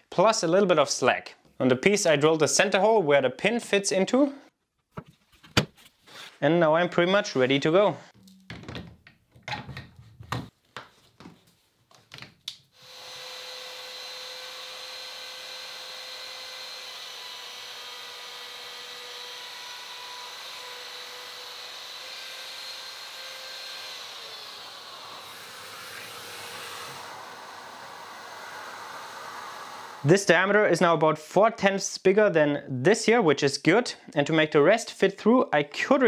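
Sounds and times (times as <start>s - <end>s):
electric router whining: 12.8s - 30.1s.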